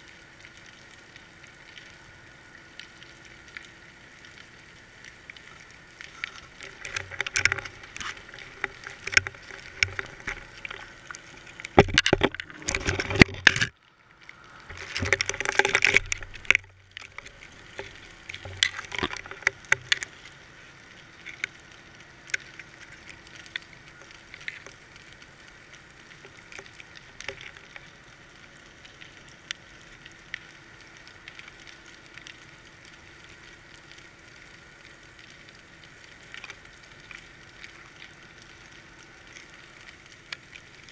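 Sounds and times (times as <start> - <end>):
muffled underwater clicks and knocks: 6.0 - 13.8, 14.6 - 20.3, 21.2 - 21.6, 26.2 - 27.9
underwater rushing rattling noise: 6.1 - 13.8, 14.6 - 20.1.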